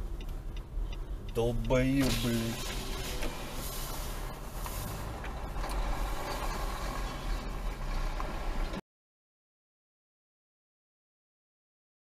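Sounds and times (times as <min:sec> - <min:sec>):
car engine and road rumble: 0:00.0 - 0:08.8.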